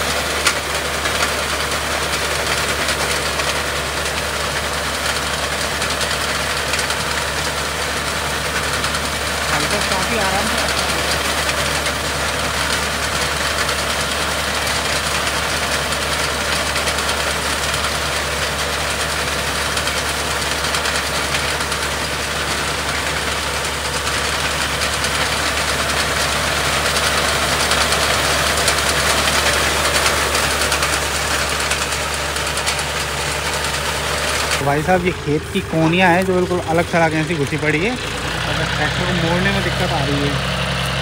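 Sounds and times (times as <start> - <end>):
tractor diesel engine running: 0.0 - 41.0.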